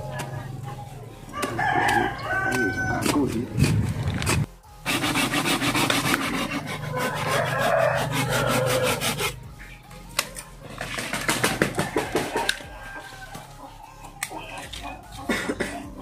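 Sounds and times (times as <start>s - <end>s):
scraping strokes on wood: 1.5s - 9.6s.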